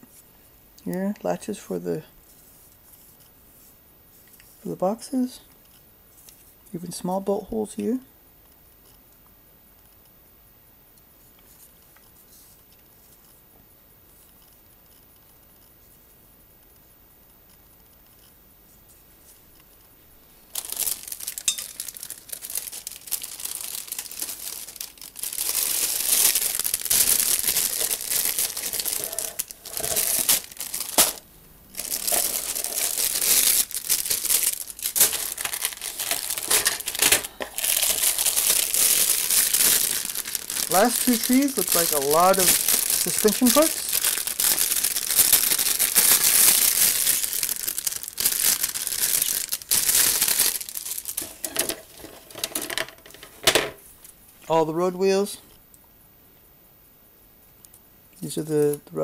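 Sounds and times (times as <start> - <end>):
plastic bags crinkling: 20.5 - 53.5.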